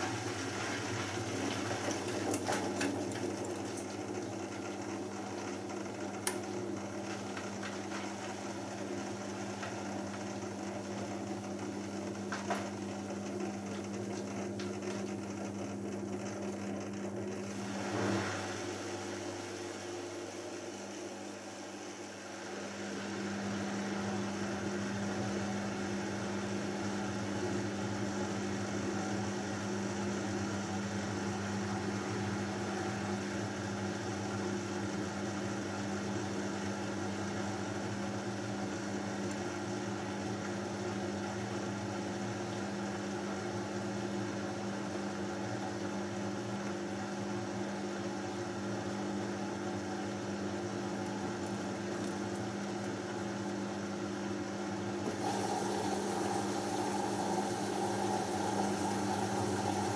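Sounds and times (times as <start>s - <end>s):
washing machine drum spinning: 0.0s - 21.3s, 50.6s - 59.9s.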